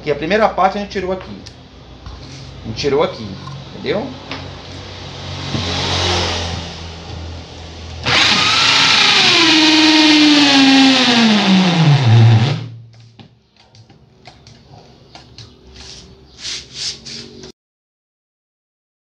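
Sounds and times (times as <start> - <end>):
electric drill cutting with hole saw: 8.0 - 12.8.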